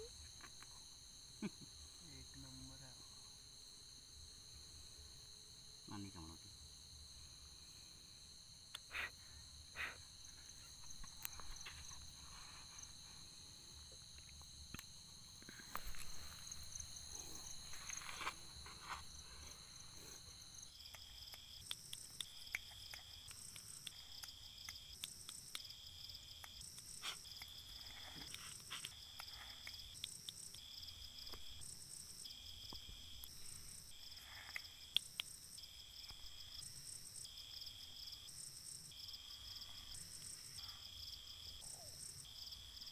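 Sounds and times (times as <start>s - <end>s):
night insects chirping: 0.0s - 42.9s.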